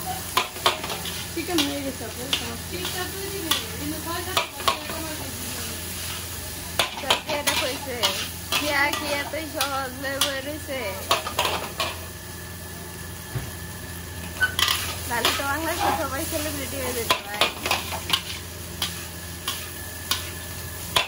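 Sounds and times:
steady sizzle: 0.0 - 21.0
metal spatula scraping wok: 0.5 - 12.0, 14.3 - 21.0.

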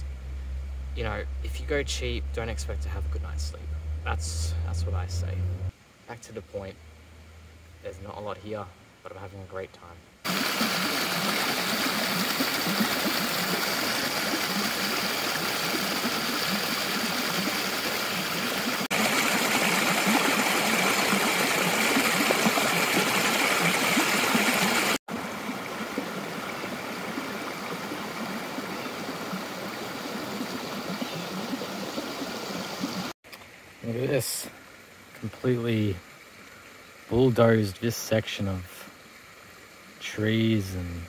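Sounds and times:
stream water rushing: 10.2 - 41.0.

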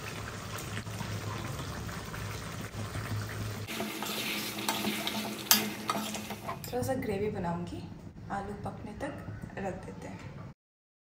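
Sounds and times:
curry bubbling and sizzling: 0.0 - 6.7.

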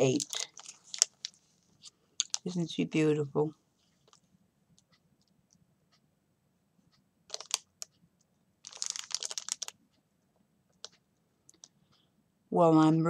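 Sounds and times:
plastic packaging crinkling: 0.0 - 1.4, 2.2 - 2.6, 7.3 - 7.7, 8.6 - 9.8
plastic clicks: 7.3 - 8.0.

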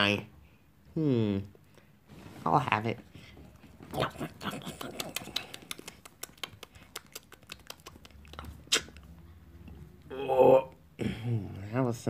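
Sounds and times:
mouth clicks and smacks: 3.9 - 9.2.

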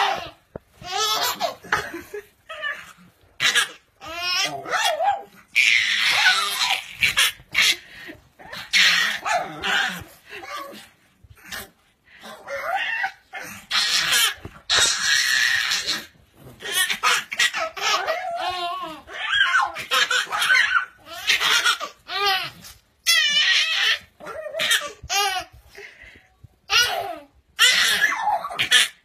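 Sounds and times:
baby laughing: 0.0 - 4.6, 13.7 - 24.0
dog noises: 0.0 - 26.1, 26.7 - 29.0.

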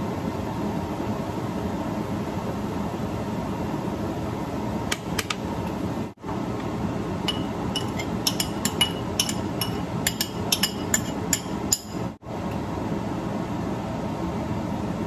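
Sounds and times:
steady background noise: 0.0 - 15.0
utensil clinking on ceramic bowl: 7.3 - 12.1.

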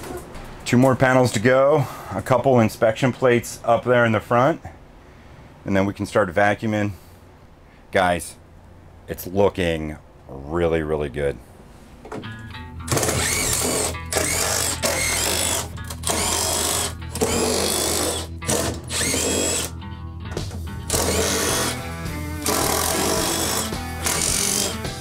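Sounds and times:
background music: 12.2 - 25.0
cordless drill running: 12.9 - 19.7, 20.9 - 24.8.

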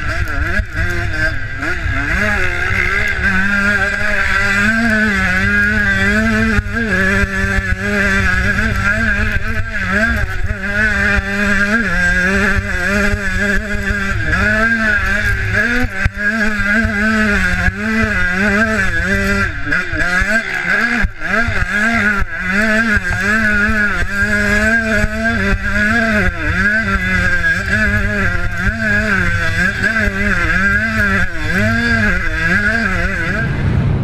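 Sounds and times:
motocross bike engine revving: 0.0 - 34.0
wind rumble on microphone: 25.0 - 34.0.

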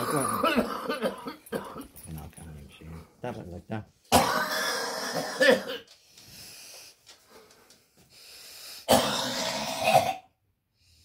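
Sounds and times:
man coughing hard: 0.0 - 2.0, 4.1 - 5.9, 8.9 - 10.2
quiet breathing: 5.9 - 8.9.

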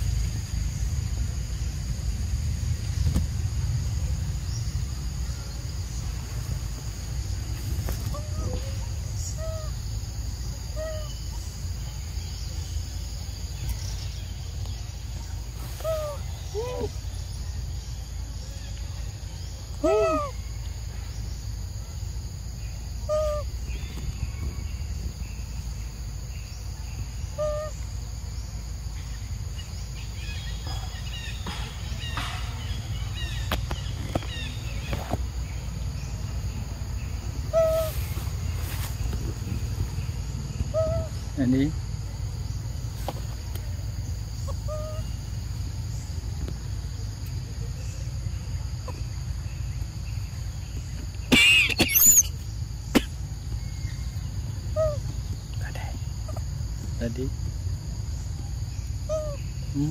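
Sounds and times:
steady low rumble: 0.0 - 51.3, 52.3 - 59.8
short arched animal calls: 15.7 - 17.0, 37.5 - 38.2, 40.7 - 41.1, 51.3 - 52.4.

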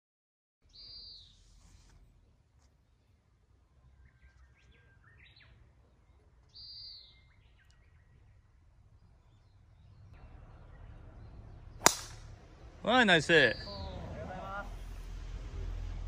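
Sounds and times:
faint bird calls and chirps: 0.6 - 14.3
loud high bird call: 13.3 - 14.8.

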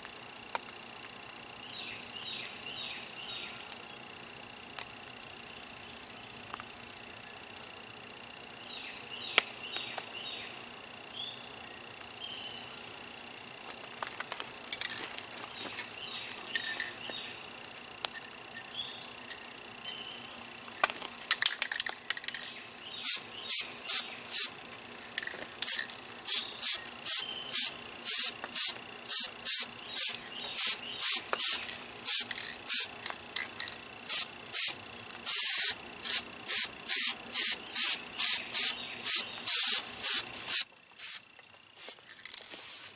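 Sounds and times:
clicks and rattles: 13.7 - 15.2, 20.7 - 22.6, 31.3 - 33.9, 42.0 - 42.6
aerosol spray hissing bursts: 23.0 - 24.5, 26.3 - 32.9, 34.1 - 42.0, 42.6 - 42.9.

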